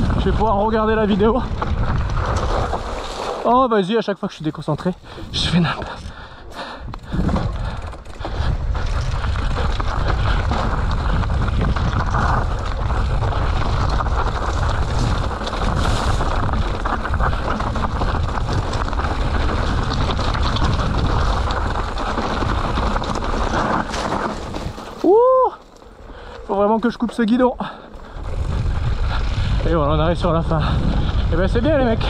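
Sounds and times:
wind buffeting microphone: 0.0s - 3.0s, 5.0s - 25.4s, 28.0s - 32.0s
bike tyres and frame rattling: 0.0s - 32.0s.

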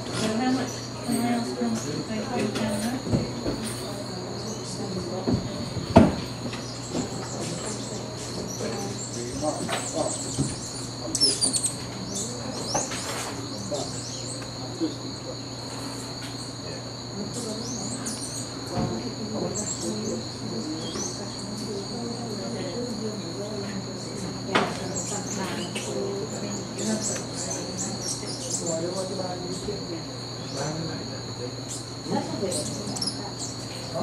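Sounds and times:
high-pitched insect drone: 0.0s - 34.0s.

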